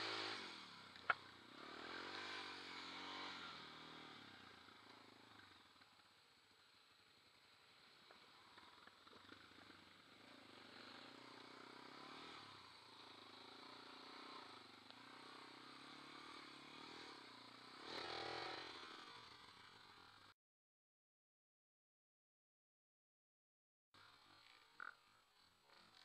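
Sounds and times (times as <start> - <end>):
quad bike engine revving: 0.0 - 5.8, 8.1 - 20.3.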